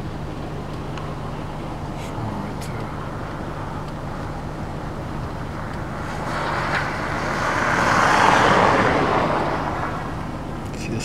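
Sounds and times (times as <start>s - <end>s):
steady low hum: 0.0s - 11.0s
vehicle passing by: 1.7s - 11.0s.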